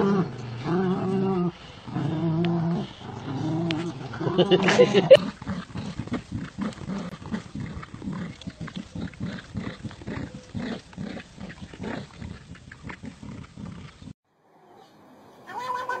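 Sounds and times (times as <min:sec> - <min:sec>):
dogs growling in play: 0:00.0 - 0:14.2.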